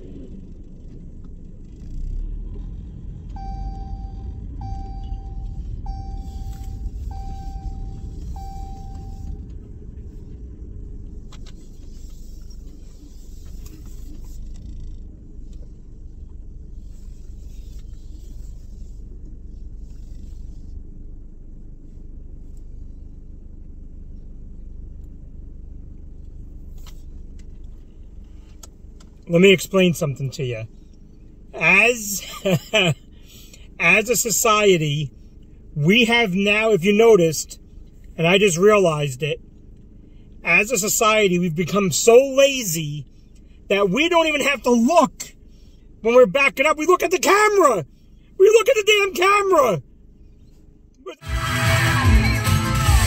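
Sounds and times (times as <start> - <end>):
car engine low rumble: 0.0 - 53.0
dashboard chime beeping: 3.4 - 9.4.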